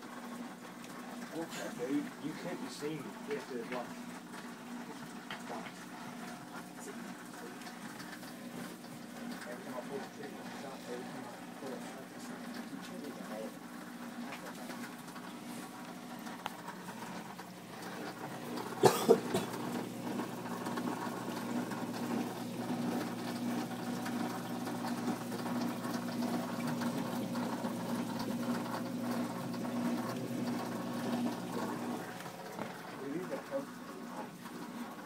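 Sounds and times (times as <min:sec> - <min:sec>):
aquarium pump hum: 0:00.0 - 0:35.0
water running: 0:00.0 - 0:35.0.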